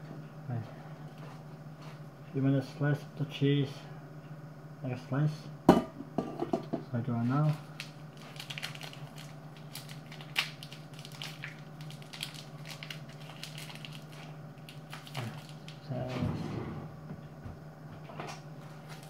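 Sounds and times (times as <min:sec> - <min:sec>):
steady low hum: 0:00.0 - 0:19.0
plastic wrapper crinkling: 0:07.4 - 0:15.8, 0:18.6 - 0:19.0.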